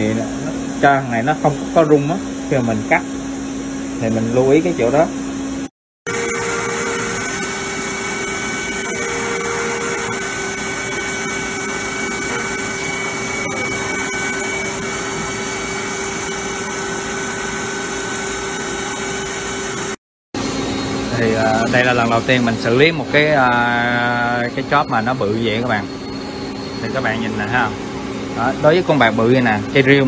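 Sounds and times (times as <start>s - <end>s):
milling machine cutting steel: 6.1s - 20.0s.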